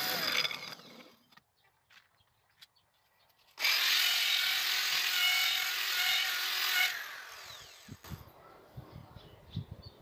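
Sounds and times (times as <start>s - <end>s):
blade shaving wood: 0.0s - 1.3s, 3.5s - 8.1s
power drill whining: 3.6s - 8.1s.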